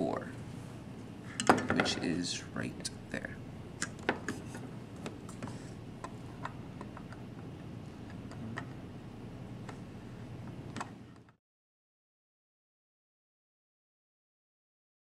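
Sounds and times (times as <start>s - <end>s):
low hum: 2.2s - 11.4s.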